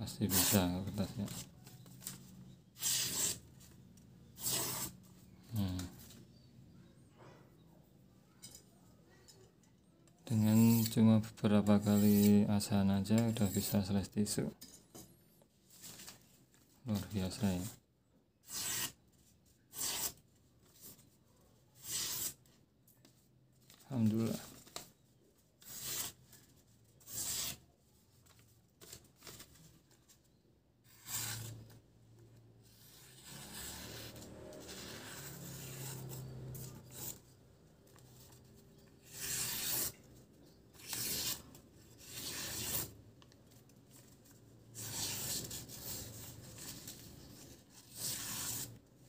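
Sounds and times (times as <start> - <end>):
knife slicing tissue paper: 39.0 - 40.0.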